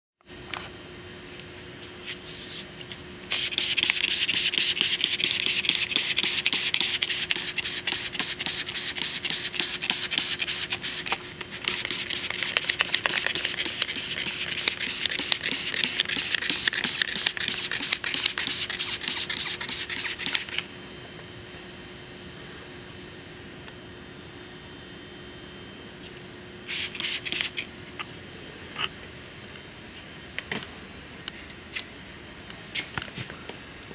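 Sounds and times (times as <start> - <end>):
faint steady hum: 0.2 - 33.9
hand scrubbing a metal surface: 3.4 - 20.5.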